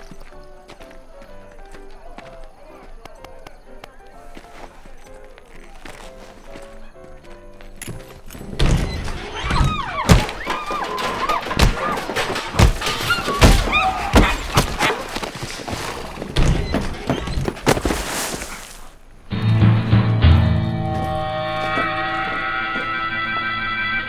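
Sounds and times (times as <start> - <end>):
thuds and crashes: 8.5 - 18.6
things breaking and smashing: 8.6 - 18.6
raised voices crying out: 9.1 - 14.6, 21.2 - 24.0.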